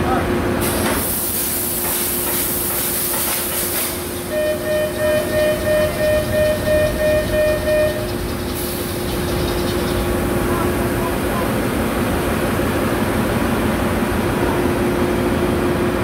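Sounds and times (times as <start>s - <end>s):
engine-room machinery noise: 0.0s - 16.0s
alarm beeping: 4.2s - 8.9s.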